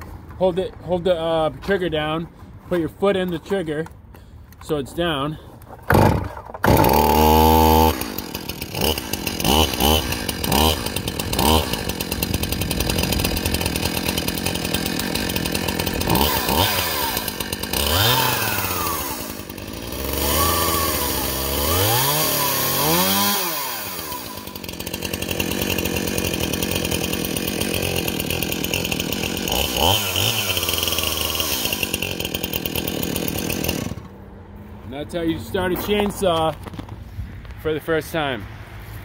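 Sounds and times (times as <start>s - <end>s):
chainsaw engine revving: 5.9s - 34.2s.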